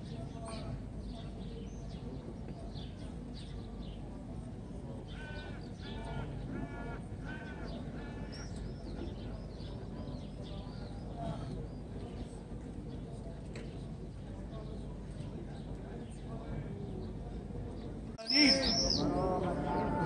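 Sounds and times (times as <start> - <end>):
murmur of praying voices: 0.0 - 20.0
small birds chirping: 7.4 - 20.0.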